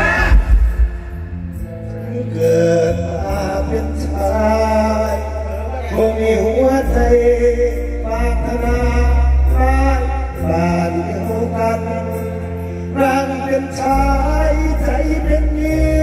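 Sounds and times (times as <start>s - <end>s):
heavy steady bass: 0.0s - 12.5s.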